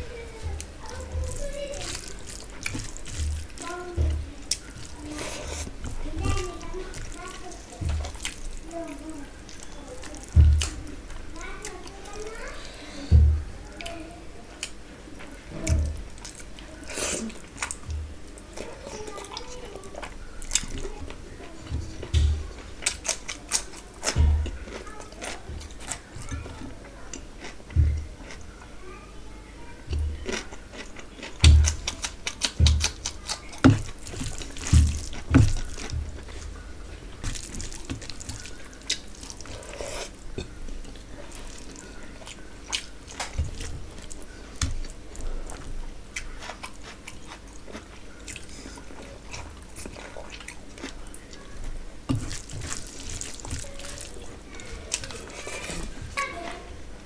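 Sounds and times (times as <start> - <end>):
wet chewing and lip smacking: 0.5 - 3.8, 4.4 - 10.8, 29.9 - 56.1
fingers squelching rice in gravy: 0.5 - 10.8, 31.4 - 36.6, 37.2 - 47.4, 52.1 - 54.3.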